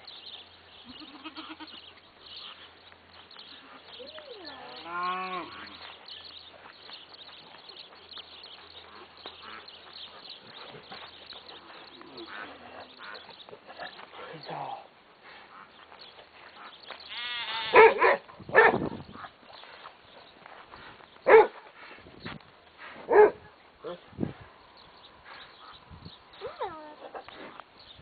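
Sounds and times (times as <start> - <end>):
farm animal bleating call: 0.8 - 1.9, 3.4 - 6.0, 17.0 - 18.0.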